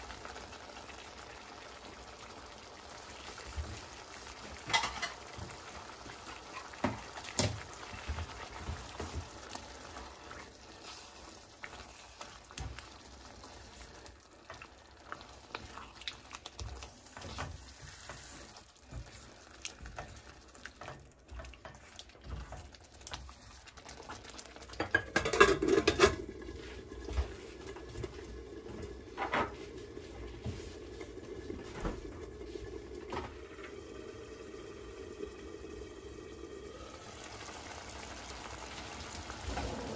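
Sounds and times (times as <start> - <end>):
sauce simmering: 0.0 - 39.9
spatula scraping pan: 16.6 - 22.7
metal lid clattering: 24.9 - 26.2.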